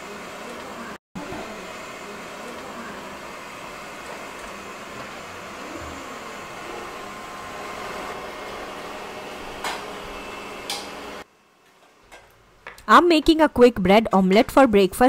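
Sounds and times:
robot vacuum cleaner running: 0:00.0 - 0:11.2.

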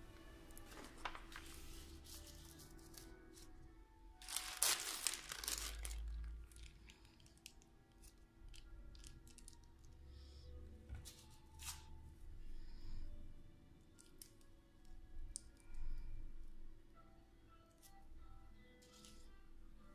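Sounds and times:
plastic film ripping: 0:04.2 - 0:09.7
plastic film crinkling: 0:04.2 - 0:09.9.

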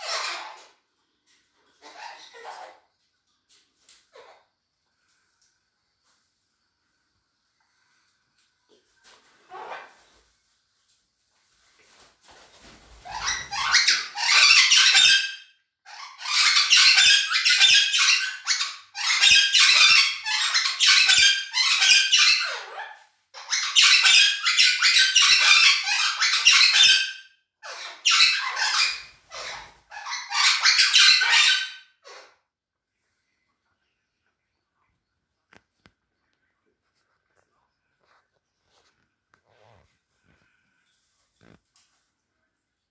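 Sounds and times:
parrots calling loudly: 0:00.0 - 0:00.8, 0:01.8 - 0:02.8, 0:09.5 - 0:09.9, 0:13.0 - 0:32.4.

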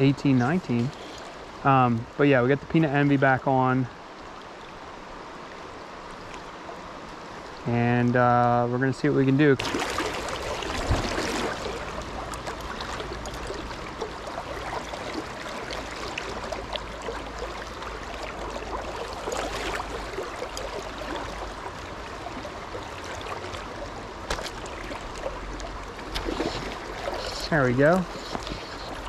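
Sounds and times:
river water rushing: 0:09.6 - 0:29.0.

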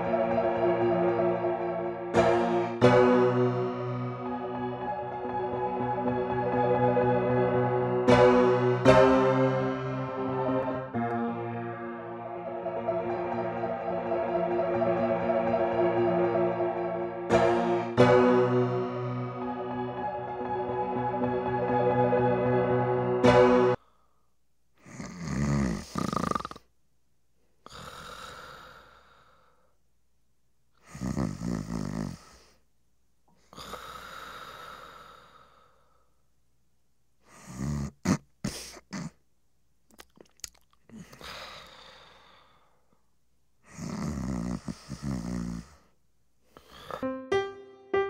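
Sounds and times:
person snoring: 0:24.8 - 0:26.6, 0:27.6 - 0:29.5, 0:30.8 - 0:32.6, 0:33.5 - 0:35.8, 0:37.3 - 0:39.2, 0:43.7 - 0:46.0, 0:46.6 - 0:47.1
short snorts: 0:24.8 - 0:26.6, 0:30.8 - 0:32.6, 0:37.3 - 0:39.2, 0:43.7 - 0:45.9, 0:46.5 - 0:47.0.

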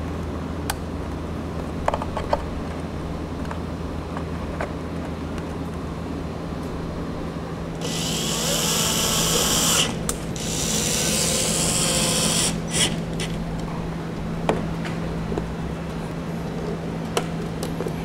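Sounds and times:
cordless drill driving screws: 0:07.8 - 0:13.3.

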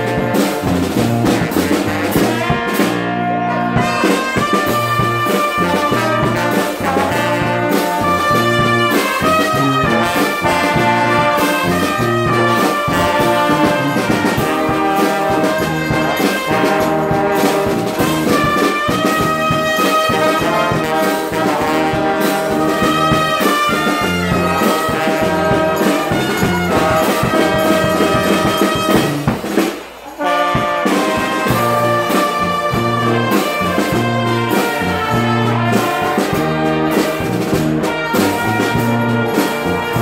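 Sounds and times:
wind band playing: 0:00.0 - 0:40.0.

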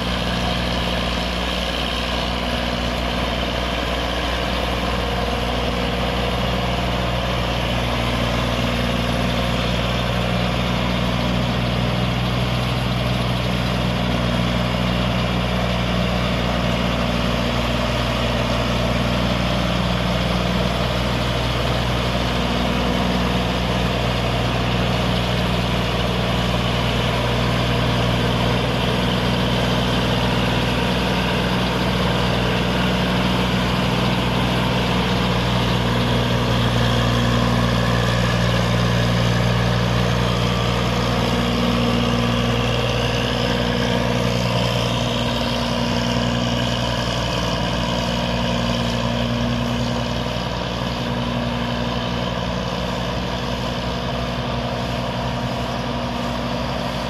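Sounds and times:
combine harvester engine running: 0:00.0 - 0:57.0.

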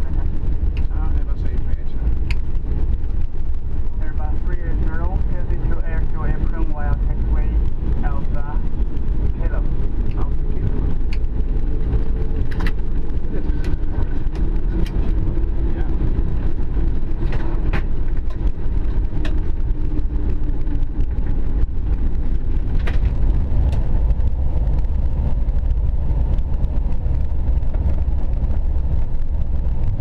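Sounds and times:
airliner engine rumble: 0:00.0 - 0:30.0.

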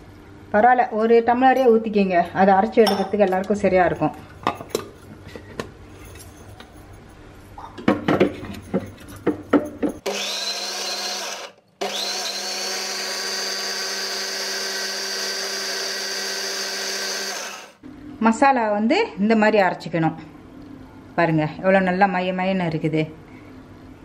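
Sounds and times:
mixer grinder motor whining: 0:10.0 - 0:17.8.

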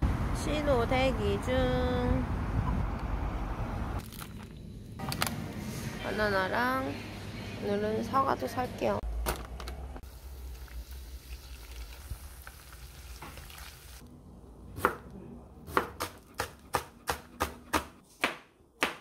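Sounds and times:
hot water hissing in pot: 0:10.0 - 0:14.0
knife chopping on plastic board: 0:15.7 - 0:19.0.

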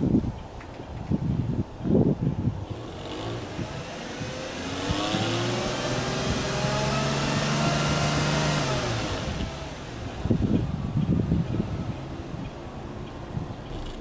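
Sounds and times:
car engine revving: 0:02.6 - 0:12.5, 0:13.6 - 0:14.0.

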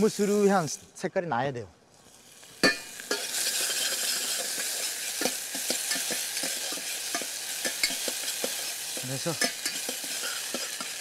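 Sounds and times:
onion sizzling in oil: 0:00.0 - 0:01.0, 0:01.9 - 0:11.0
spoon scraping a pan: 0:02.6 - 0:11.0.

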